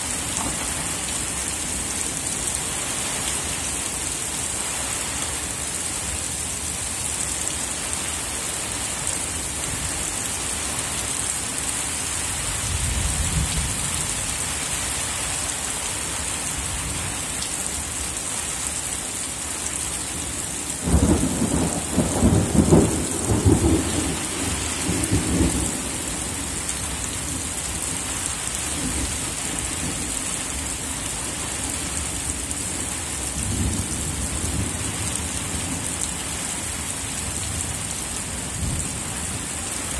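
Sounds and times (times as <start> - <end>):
rain hissing: 0.0 - 39.9
low thunder rumbles: 20.8 - 26.2.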